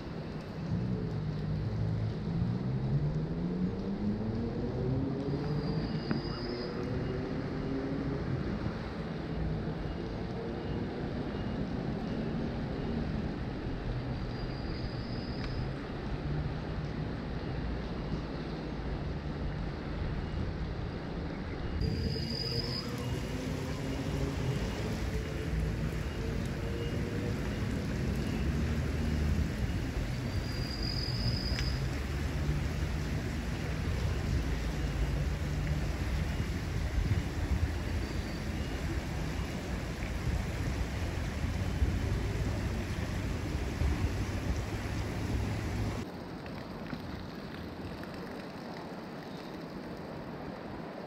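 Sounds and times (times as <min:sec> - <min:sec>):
thin high whistle-like tone: 0:05.4 - 0:07.2, 0:14.2 - 0:15.7, 0:21.8 - 0:24.9, 0:30.3 - 0:31.9
wind rumble on microphone: 0:15.8 - 0:48.3
wind buffeting microphone: 0:35.9 - 0:46.0
fast-flowing creek rushing: 0:37.9 - 0:46.0.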